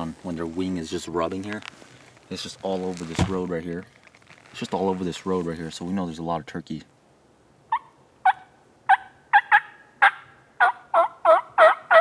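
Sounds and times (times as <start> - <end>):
turkey yelps: 7.7 - 12.0.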